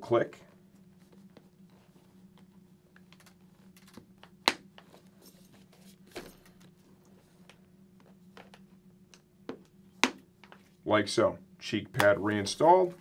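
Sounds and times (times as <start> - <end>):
helmet pads snapping into place: 9.5 - 10.6.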